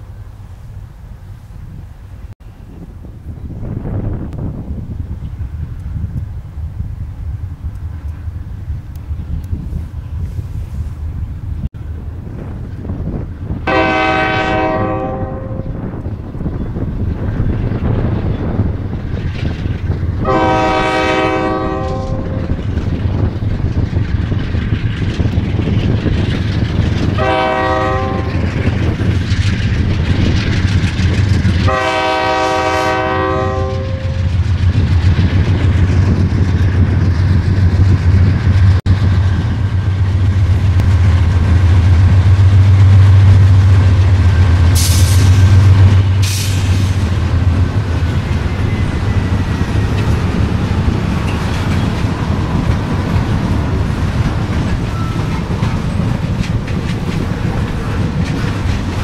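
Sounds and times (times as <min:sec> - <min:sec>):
locomotive diesel engines rumbling: 0:00.0 - 0:59.0
train air horn blasts: 0:13.7 - 0:15.8, 0:20.2 - 0:22.6, 0:27.2 - 0:28.4, 0:31.6 - 0:34.3.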